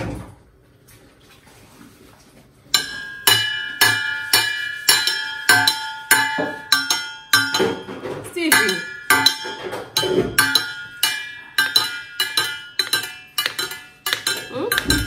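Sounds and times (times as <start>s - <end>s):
baby striking small cup: 11.6s - 15.0s.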